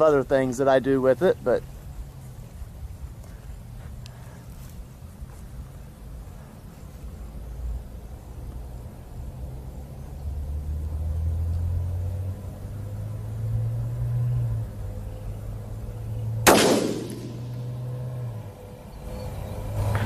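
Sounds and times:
rifle shot: 0:16.4 - 0:17.8.

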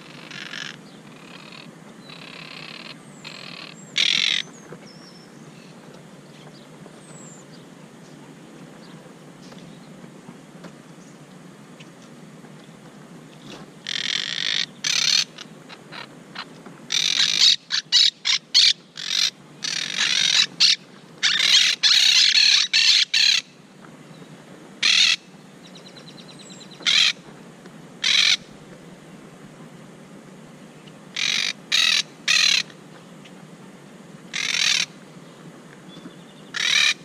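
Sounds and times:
parakeets squawking: 0:00.0 - 0:04.5, 0:13.8 - 0:23.5, 0:24.8 - 0:25.3, 0:26.8 - 0:27.2, 0:28.0 - 0:28.4, 0:31.1 - 0:32.7, 0:34.3 - 0:35.0, 0:36.5 - 0:37.0.

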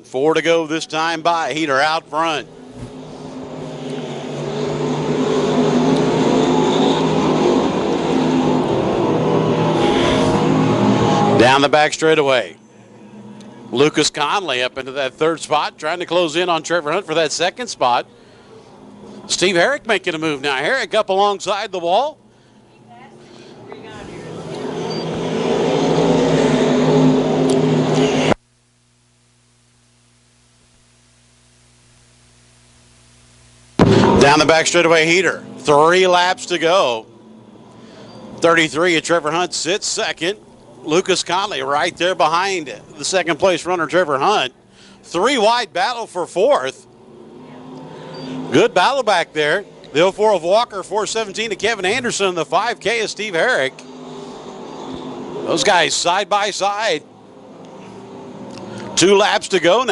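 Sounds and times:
faint steady hum: 0:00.0 - 0:59.9
stock car engines racing: 0:00.2 - 0:28.4, 0:33.8 - 0:59.9.

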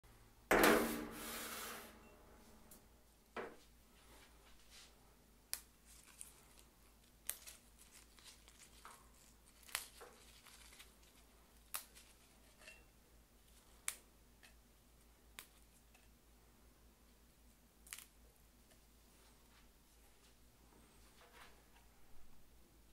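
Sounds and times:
leaves snapping: 0:05.5 - 0:12.2, 0:17.8 - 0:18.1.

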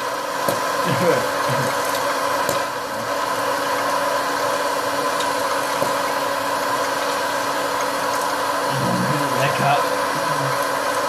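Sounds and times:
popcorn machine fan humming: 0:00.0 - 0:11.0
popcorn popping clicks: 0:00.4 - 0:00.8.

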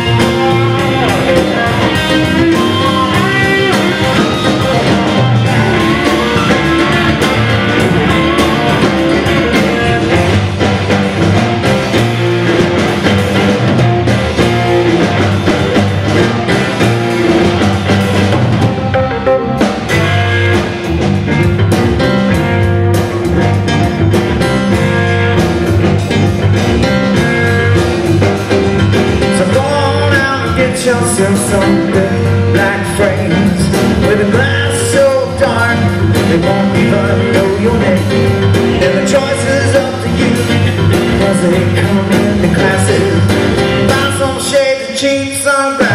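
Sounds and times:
lead vocal singing: 0:00.0 - 0:10.6, 0:29.2 - 0:45.9
bass drums and keyboard: 0:00.0 - 0:45.9
electric guitar: 0:00.0 - 0:45.9.

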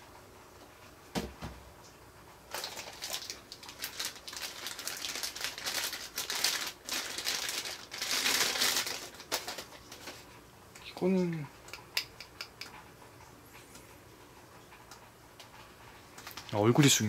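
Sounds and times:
plastic bags crinkling: 0:02.5 - 0:10.3, 0:16.2 - 0:16.6.

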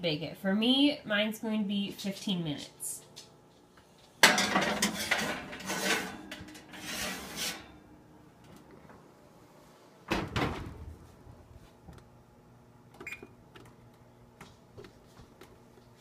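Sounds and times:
baking pan clanking on oven rack: 0:04.2 - 0:06.7
pan scraping and rattling: 0:04.2 - 0:07.7
oven door clatter shut: 0:10.1 - 0:11.0.

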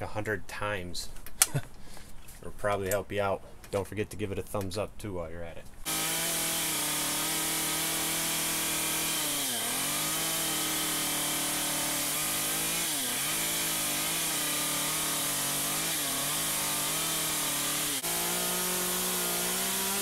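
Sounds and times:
chainsaw cutting wood: 0:05.8 - 0:20.0.

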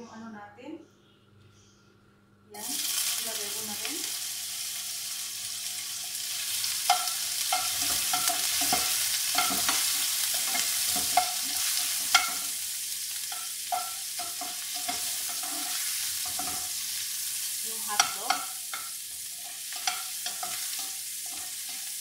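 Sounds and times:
food sizzling in frying pan: 0:02.6 - 0:22.0
spatula knocking against pan: 0:18.0 - 0:18.9.

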